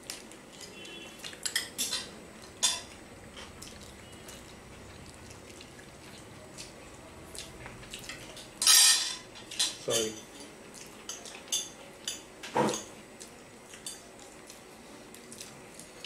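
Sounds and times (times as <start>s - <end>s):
cutlery clinking on plates: 0.6s - 3.0s, 8.1s - 10.4s, 11.0s - 13.0s.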